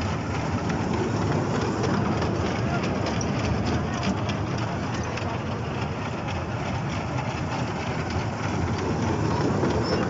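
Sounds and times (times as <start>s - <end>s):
mini train rumbling on track: 0.0s - 10.0s.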